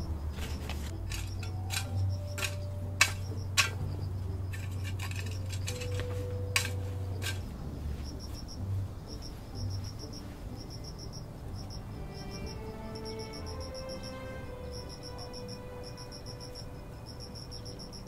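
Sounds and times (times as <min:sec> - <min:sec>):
hoe blade clinking on stones: 0:00.4 - 0:07.6.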